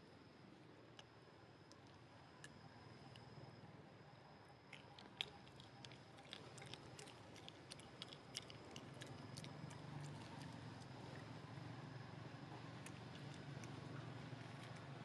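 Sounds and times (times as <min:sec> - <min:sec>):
monkey chewing food: 0:04.7 - 0:11.2, 0:12.6 - 0:15.0.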